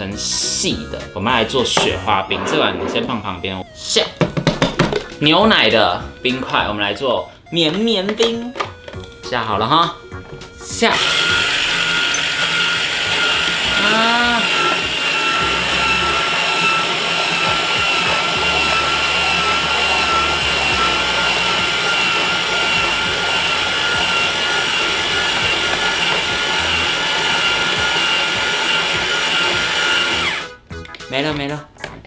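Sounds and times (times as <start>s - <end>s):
ice being shaved: 10.8s - 30.5s
motor whine: 11.0s - 30.6s.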